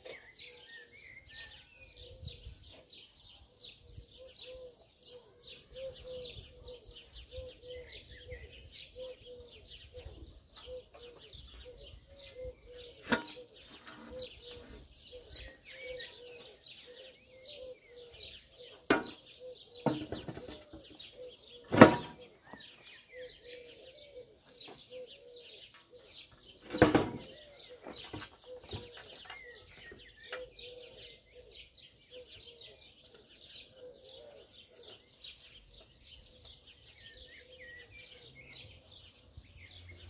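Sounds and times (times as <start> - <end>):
birds chirping: 0.0 - 40.0
low cooing: 4.2 - 18.8, 30.3 - 32.9.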